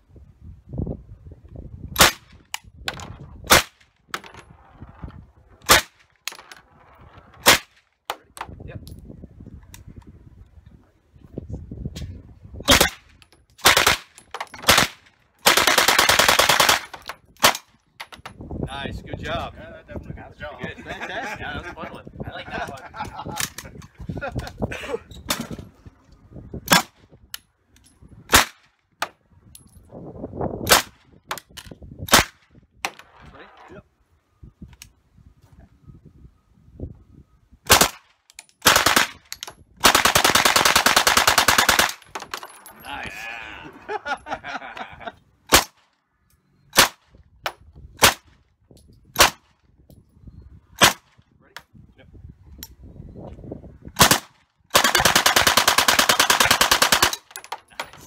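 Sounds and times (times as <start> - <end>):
automatic gunfire: 14.6 - 16.9, 39.8 - 42.0, 54.0 - 57.2.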